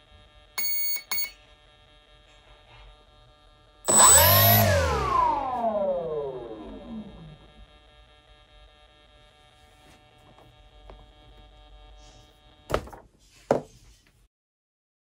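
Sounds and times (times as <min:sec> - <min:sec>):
faint electrical hum: 0:05.0 - 0:14.3
loud knocks from handling: 0:12.7 - 0:13.7.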